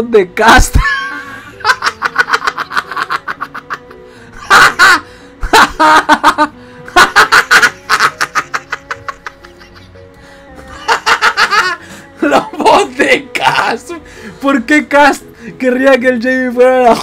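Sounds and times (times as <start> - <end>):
quiet background music: 0.0 - 17.0
person cackling with laughter: 0.8 - 10.0, 10.7 - 11.8.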